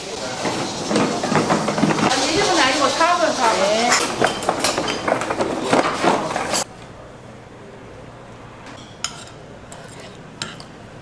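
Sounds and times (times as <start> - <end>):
dishes and utensils clattering: 0.2 - 6.7, 8.7 - 10.8.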